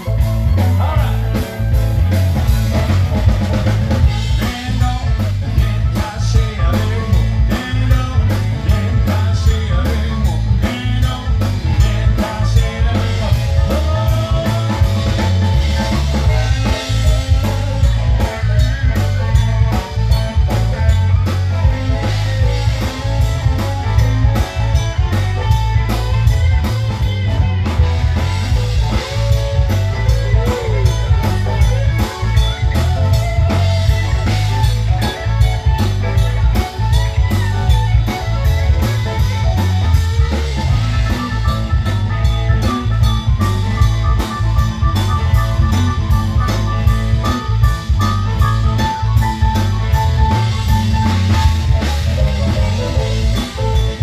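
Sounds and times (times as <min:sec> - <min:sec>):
drum kit steady beat: 0:00.0 - 0:54.0
electric guitar through amplifier: 0:00.0 - 0:54.0.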